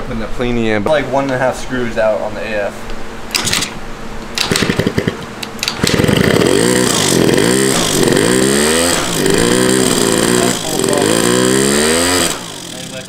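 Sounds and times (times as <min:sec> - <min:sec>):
scooter engine running unevenly: 0:04.4 - 0:13.0.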